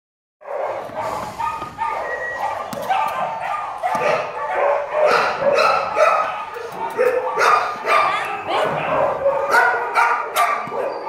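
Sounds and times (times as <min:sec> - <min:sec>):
dogs barking and yipping: 0:00.4 - 0:11.0.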